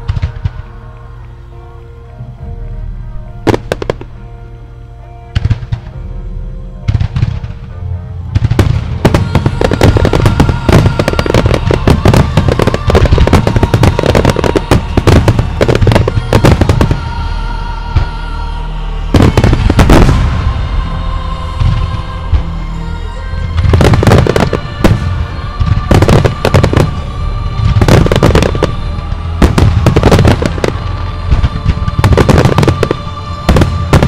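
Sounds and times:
fireworks bursting and crackling: 0.0s - 0.8s, 3.5s - 4.1s, 6.9s - 7.6s, 8.3s - 17.3s, 19.0s - 20.8s, 23.6s - 34.0s
music playing: 0.0s - 34.0s.

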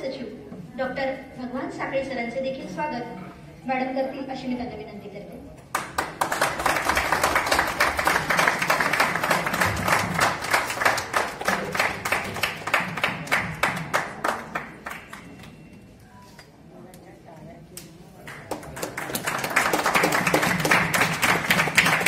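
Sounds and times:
audience applauding: 5.7s - 15.6s, 18.3s - 22.0s.

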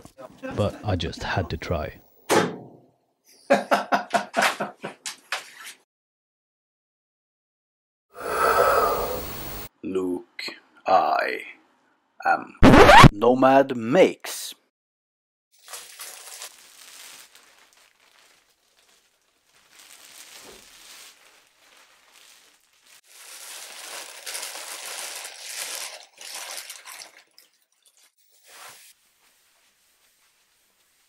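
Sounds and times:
plastic wrapping crinkling: 15.6s - 31.0s.

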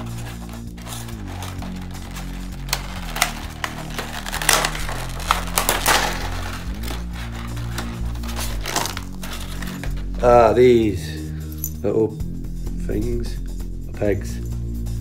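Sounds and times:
plastic trays crackling and clacking: 0.0s - 10.1s
background music with low notes: 0.0s - 15.0s.

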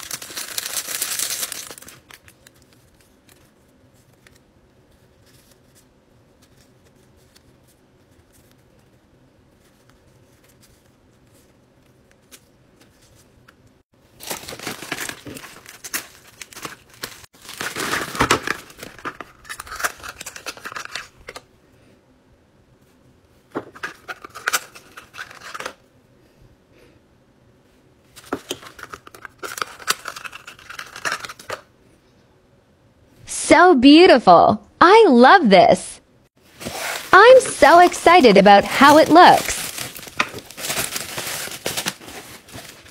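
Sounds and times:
wrapping rustling and tearing: 0.0s - 4.4s, 14.2s - 21.4s, 28.4s - 31.6s, 36.4s - 42.9s.

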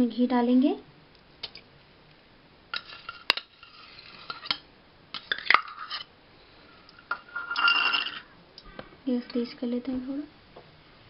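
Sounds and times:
metal utensil scraping pan: 2.8s - 4.6s, 5.2s - 6.1s, 7.0s - 8.3s.

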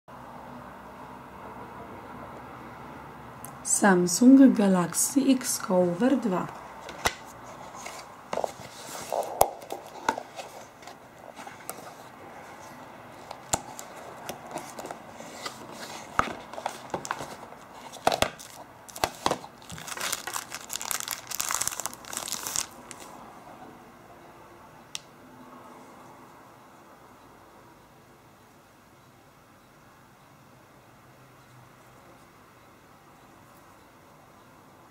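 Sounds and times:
cardboard box handled: 7.0s - 23.0s
plastic wrapping crinkling: 7.6s - 23.2s.

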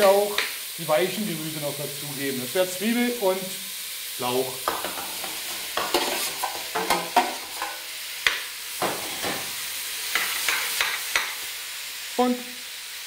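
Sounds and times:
vegetables sizzling in a pot: 0.0s - 13.0s
metal ladle scraping a pot: 4.8s - 7.8s.

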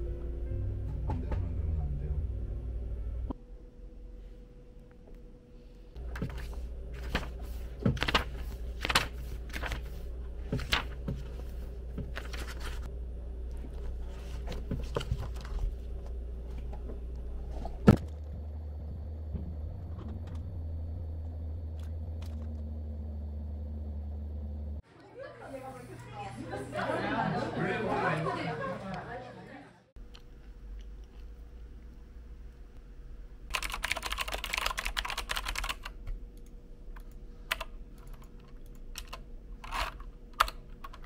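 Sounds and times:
low room hum: 0.0s - 41.0s
book pages rustling: 6.0s - 12.9s, 13.6s - 18.2s
scattered clicks: 33.5s - 41.0s.

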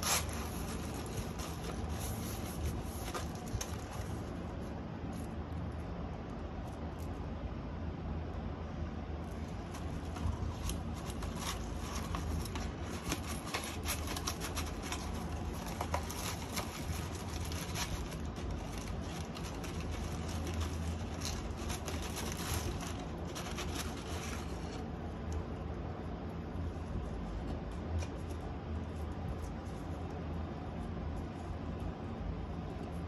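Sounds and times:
paper crinkling: 0.0s - 5.4s, 9.3s - 25.5s
steady low hum: 0.0s - 33.0s.

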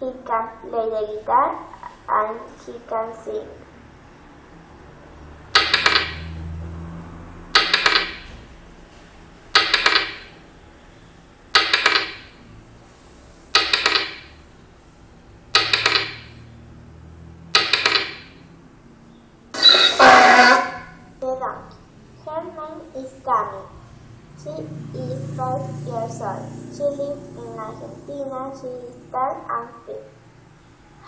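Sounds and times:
animation sound effect clicks: 5.5s - 6.3s, 7.6s - 8.2s, 9.6s - 10.3s, 11.5s - 12.3s, 13.5s - 14.3s, 15.5s - 16.3s, 17.5s - 18.3s.

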